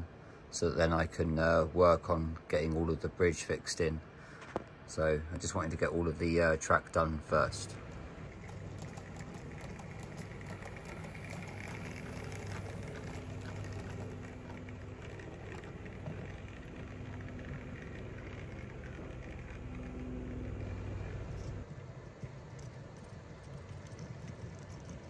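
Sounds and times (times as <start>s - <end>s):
wheels clicking on rails: 4.5s - 25.0s
model train motor hum: 7.0s - 25.0s.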